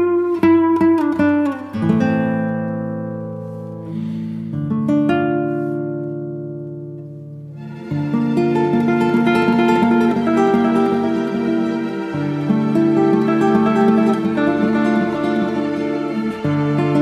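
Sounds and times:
acoustic guitar music: 0.0 - 17.0.

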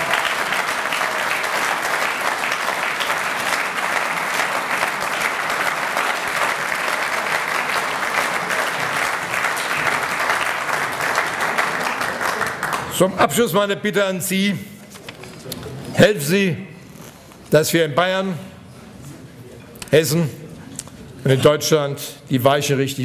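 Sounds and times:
large audience applauding: 0.0 - 13.2.

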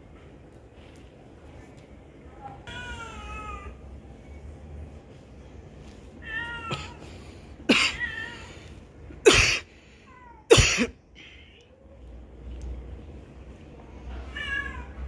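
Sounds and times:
cats meowing: 2.5 - 3.8, 6.2 - 8.8, 14.1 - 15.0.

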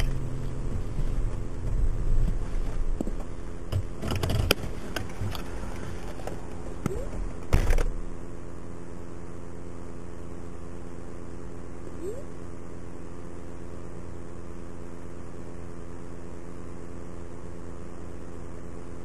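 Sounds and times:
car engine and road drone: 0.0 - 11.8.

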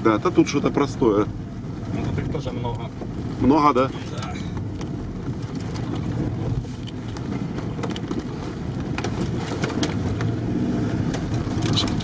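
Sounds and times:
vehicle engine and road rumble: 0.0 - 12.0
sharp rattles and knocks: 3.8 - 10.4.

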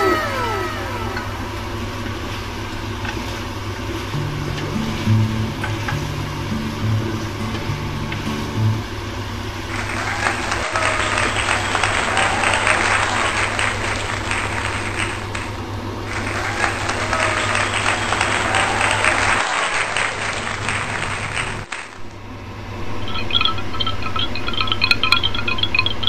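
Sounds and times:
crowd applause: 0.0 - 1.9, 9.7 - 15.5, 16.1 - 22.0.

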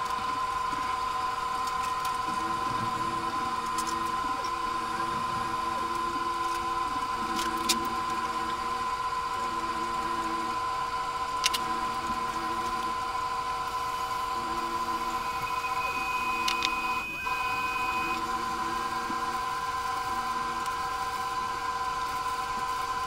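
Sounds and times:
steady hum with high tone: 0.0 - 23.0
pulsing lower tones: 11.6 - 20.7.

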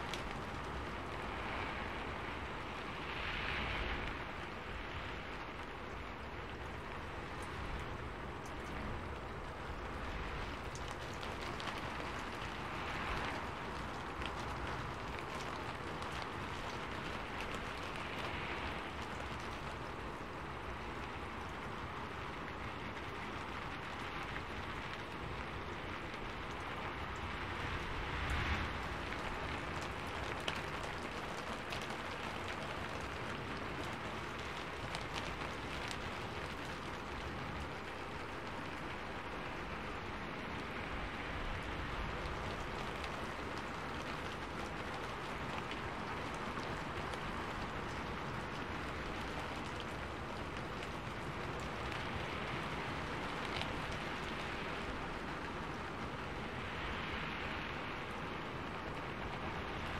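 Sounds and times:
raindrops tapping: 0.0 - 59.9
steady rainfall: 0.0 - 59.9.

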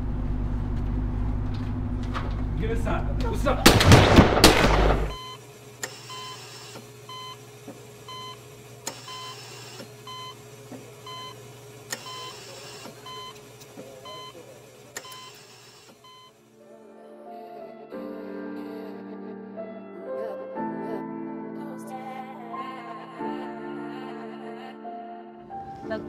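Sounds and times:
low steady hum: 0.0 - 6.3
patient monitor beeping: 5.1 - 7.4, 8.0 - 10.4, 11.0 - 16.4
hiss: 5.8 - 6.8, 8.9 - 9.9, 11.9 - 13.0.

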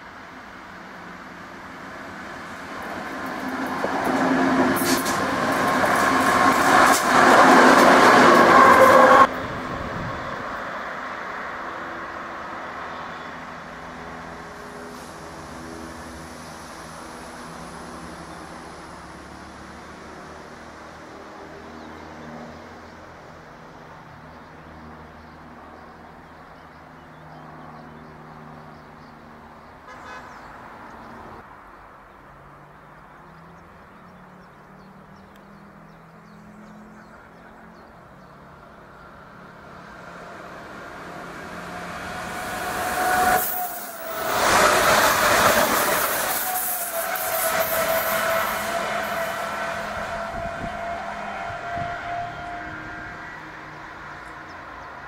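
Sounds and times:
diesel locomotive engine droning: 0.0 - 24.0, 34.4 - 55.0
electric train approaching: 1.1 - 21.5, 38.6 - 55.0.

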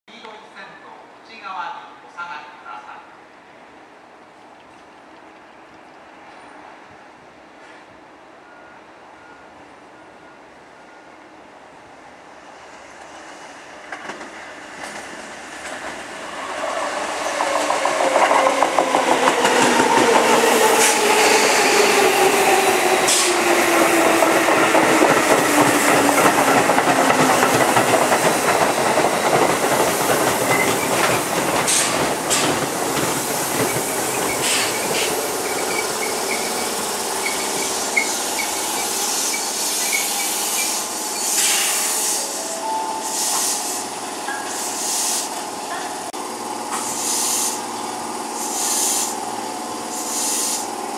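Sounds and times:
wheel noise on rails: 11.6 - 42.3, 43.1 - 50.9
air hiss bursts: 31.6 - 45.5, 46.7 - 47.7, 48.4 - 49.3, 49.9 - 50.7.

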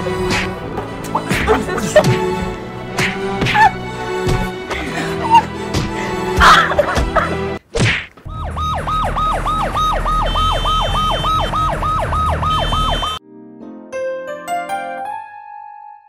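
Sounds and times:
emergency siren yelping: 8.3 - 13.2.

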